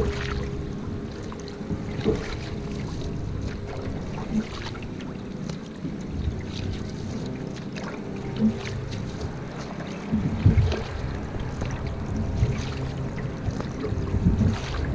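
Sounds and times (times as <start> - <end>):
paddle splashing in water: 0.0 - 14.9
water running off paddle: 0.0 - 14.9
wind noise on microphone: 8.4 - 14.9.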